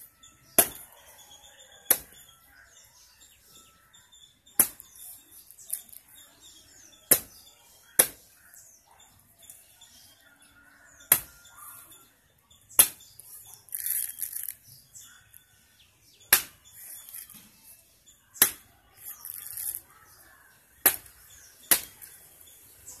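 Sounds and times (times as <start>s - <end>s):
faint bird chirps: 0.0s - 23.0s
knife chopping coconut husk: 0.5s - 0.9s, 1.9s - 2.2s, 4.6s - 5.0s, 7.1s - 8.3s, 11.1s - 11.4s, 12.8s - 13.2s, 16.3s - 17.3s, 18.4s - 19.8s, 20.8s - 22.1s.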